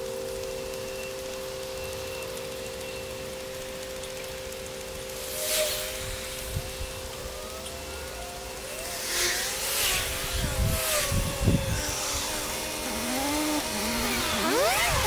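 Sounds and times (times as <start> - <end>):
cars passing on wet road: 3.0 - 15.0.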